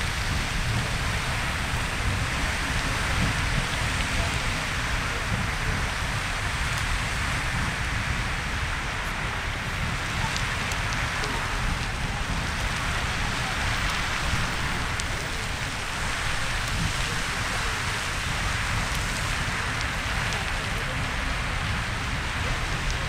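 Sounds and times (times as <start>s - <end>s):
geyser water rushing hiss: 0.0s - 23.0s.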